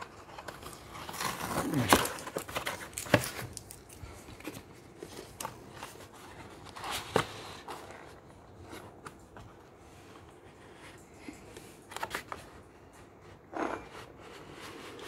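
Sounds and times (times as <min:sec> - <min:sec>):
cardboard scraping and rustling: 0:00.0 - 0:03.6, 0:04.2 - 0:15.0.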